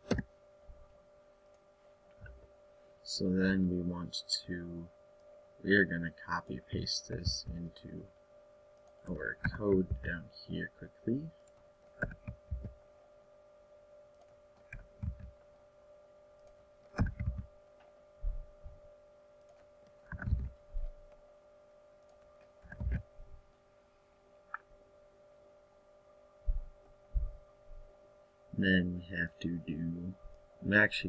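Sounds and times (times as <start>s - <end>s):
electrical hum: 0.0s - 31.0s
mouse and keyboard clicks: 11.4s - 12.7s, 16.4s - 17.5s, 19.4s - 20.5s.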